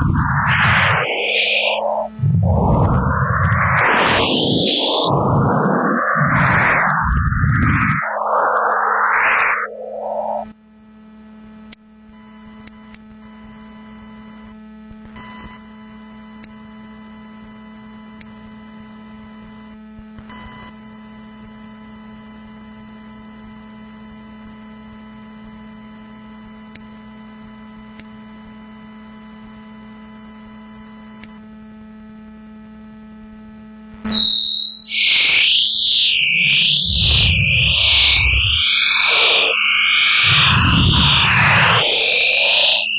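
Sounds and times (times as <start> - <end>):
high wavering electronic tone: 0.0 - 10.5, 34.1 - 42.9
sweeping electronic pitch glides: 0.0 - 10.5, 34.1 - 42.9
steady low hum: 0.0 - 11.1.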